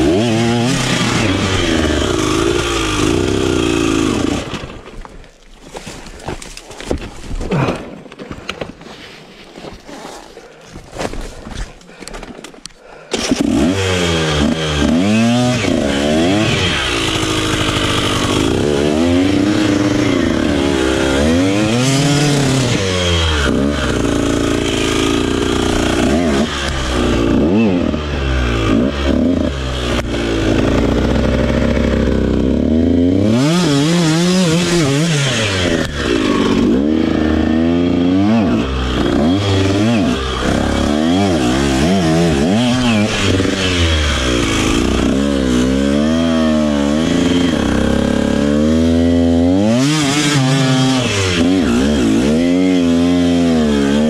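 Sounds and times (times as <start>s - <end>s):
dirt bike engine revving: 0.0s - 4.9s, 13.1s - 54.0s.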